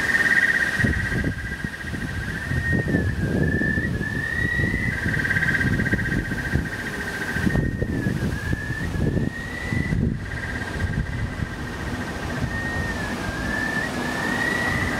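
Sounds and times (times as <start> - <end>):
wind rumble on microphone: 0.0 - 14.9.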